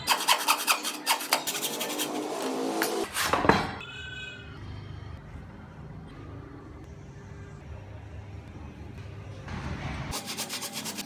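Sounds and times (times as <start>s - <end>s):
hand saw cutting wood: 0.0s - 3.0s.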